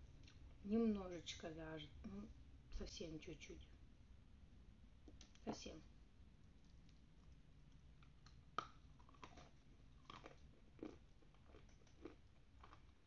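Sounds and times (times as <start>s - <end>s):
chewing dry chalky food: 6.5s - 13.0s.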